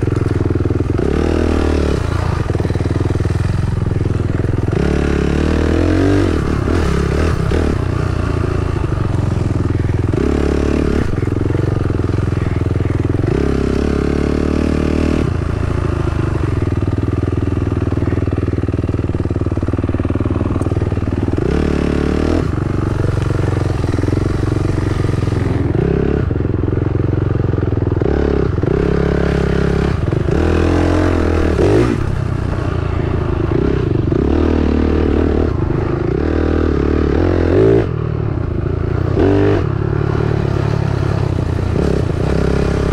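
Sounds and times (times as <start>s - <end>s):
dirt bike engine revving: 0.0s - 42.9s.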